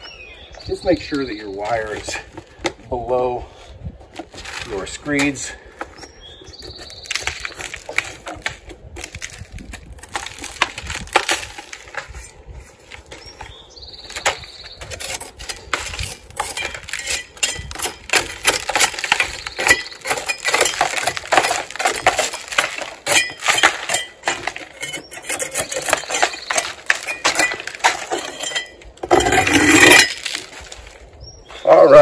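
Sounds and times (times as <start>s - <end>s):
hand tool chipping stucco: 4.0s - 12.4s, 14.0s - 30.7s.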